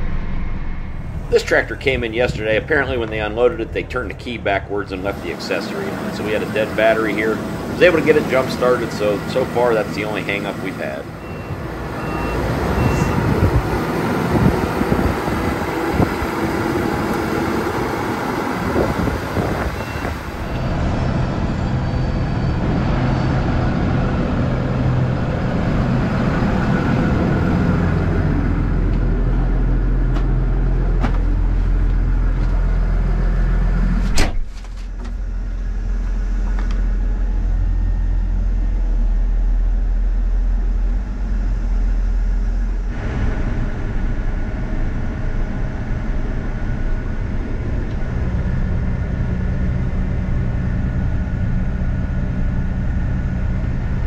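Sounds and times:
tractor diesel engine running: 0:00.0 - 0:54.0
cab door banging shut: 0:34.1 - 0:34.6.

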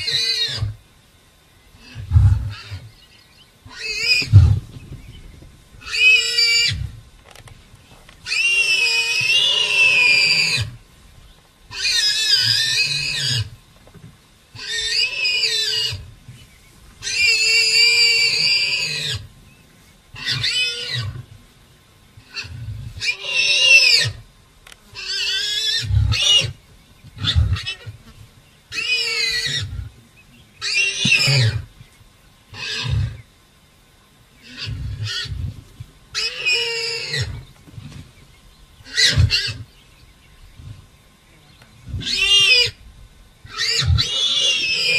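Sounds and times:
warthog squealing: 0:38.9 - 0:39.7, 0:42.0 - 0:42.8, 0:43.5 - 0:44.9.

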